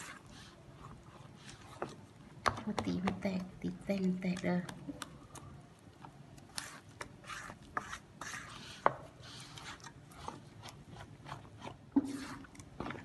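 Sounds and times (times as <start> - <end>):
batter swishing in a bowl: 0.0 - 2.3, 6.4 - 13.0.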